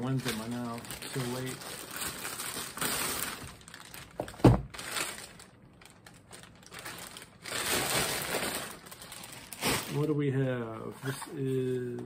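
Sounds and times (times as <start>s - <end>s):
plastic mailer bag crinkling: 0.0s - 10.4s.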